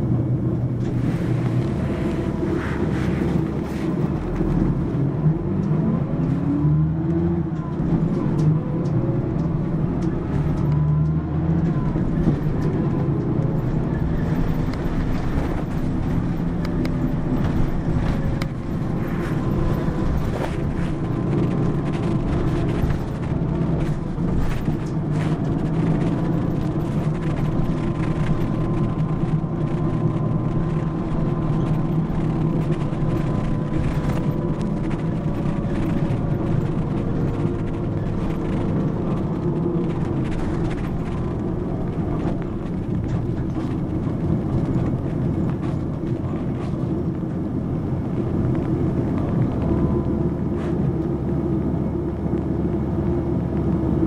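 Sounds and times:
bus diesel engine accelerating: 0.0 - 54.0
tyre and road noise: 0.0 - 54.0.

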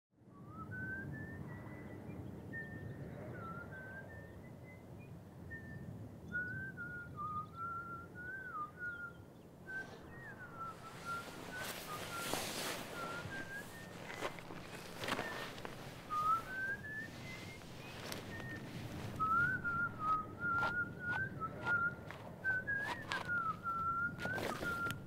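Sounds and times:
person whistling a tune: 5.5 - 25.0
scuffing or rustling noises: 10.6 - 25.0.

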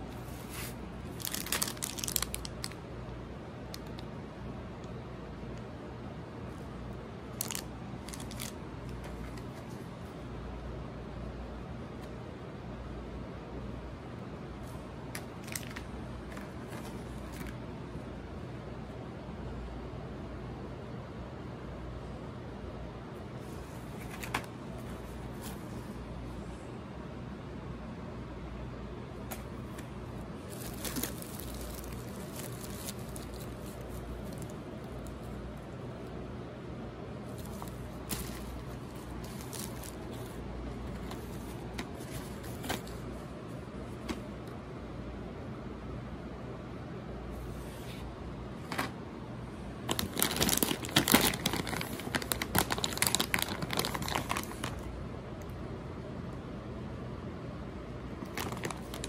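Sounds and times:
plastic packaging crinkling: 0.2 - 2.8, 7.3 - 9.7, 15.1 - 17.6, 29.3 - 35.7, 37.2 - 43.0, 49.8 - 54.9, 58.2 - 59.0.

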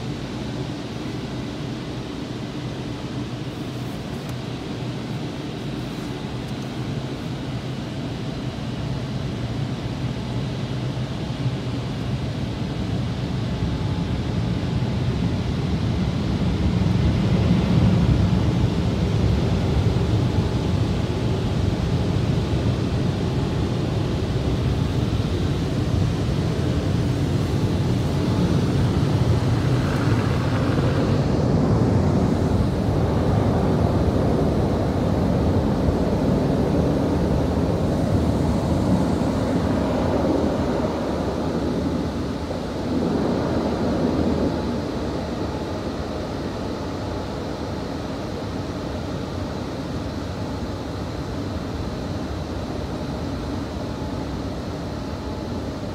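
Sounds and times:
car wash water spray: 27.0 - 32.0.

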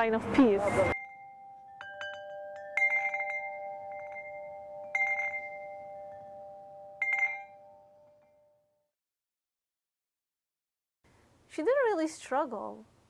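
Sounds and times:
metal chimes ringing: 0.0 - 8.8.

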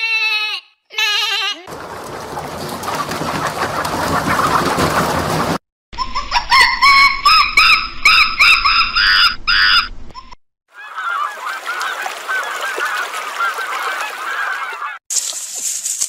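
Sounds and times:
flock of waterfowl calling: 1.7 - 5.6, 10.7 - 15.0
goose honking: 10.8 - 15.0.

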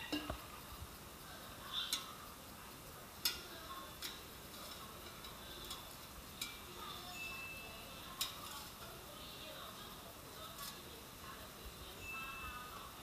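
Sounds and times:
tongs clicking against metal basket: 1.8 - 2.4, 3.1 - 7.0, 7.7 - 9.1.

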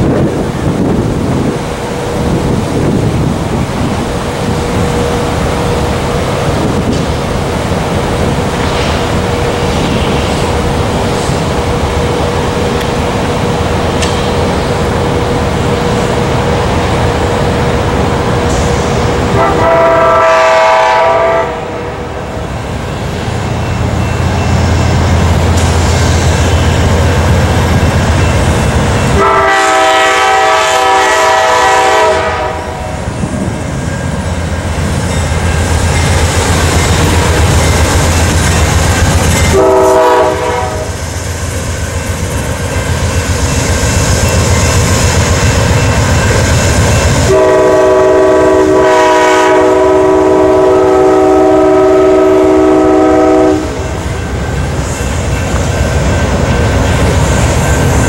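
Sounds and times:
train wheels clacking on rails: 0.0 - 19.9, 22.7 - 58.0
train horn blasts: 19.3 - 22.4, 29.1 - 33.1, 39.5 - 41.0, 47.3 - 54.0
locomotive engine rumble: 22.0 - 49.1.

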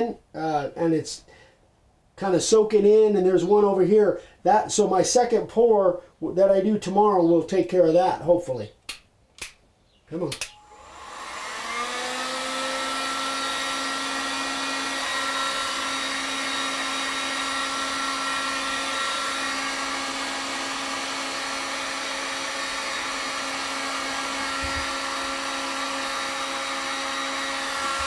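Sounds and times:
heat gun whine and air rush: 10.4 - 28.0.

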